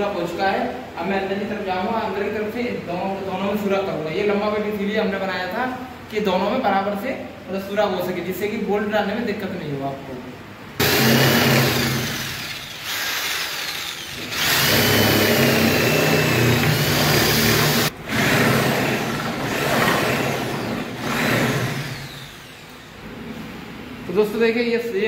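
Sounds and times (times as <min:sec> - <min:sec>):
electric drill boring through wood: 0:10.8 - 0:22.7.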